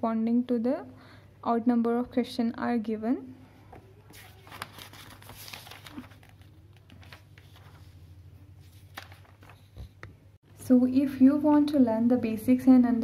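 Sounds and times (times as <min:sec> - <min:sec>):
book pages turning: 0:03.7 - 0:10.2.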